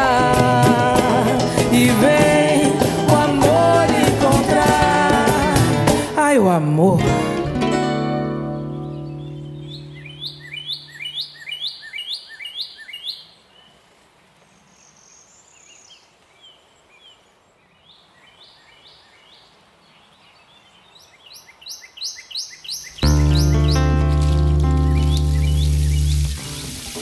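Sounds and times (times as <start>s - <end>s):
songbird chirping: 8.2s - 27.0s
band's low notes ringing: 23.0s - 27.0s.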